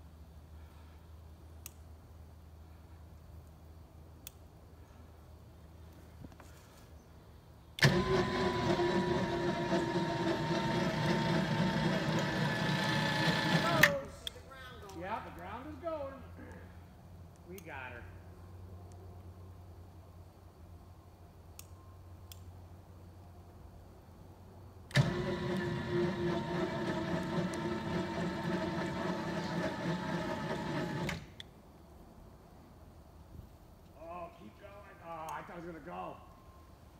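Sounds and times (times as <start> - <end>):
engine starting and running: 7.8 - 14.3, 24.9 - 31.4.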